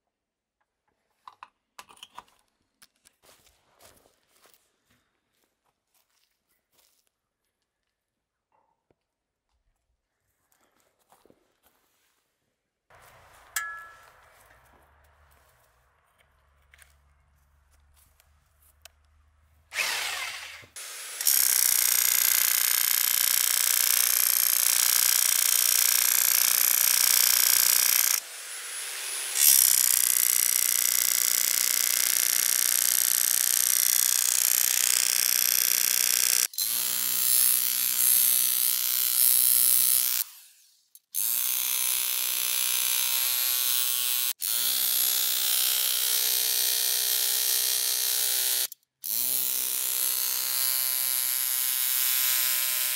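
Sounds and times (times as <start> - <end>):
electric jack hammer digging soil: 19.7 - 52.9.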